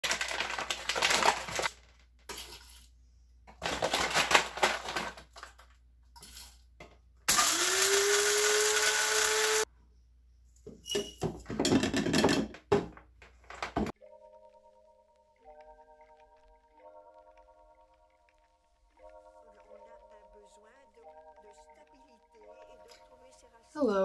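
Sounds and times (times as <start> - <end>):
coffee beans rattling: 0.0 - 2.9
coffee grinder motor whining: 7.3 - 9.7.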